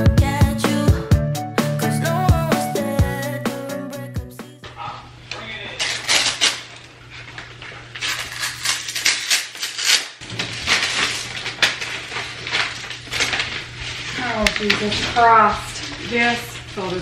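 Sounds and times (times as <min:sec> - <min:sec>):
vinyl wallpaper crinkling: 0:05.4 - 0:17.0.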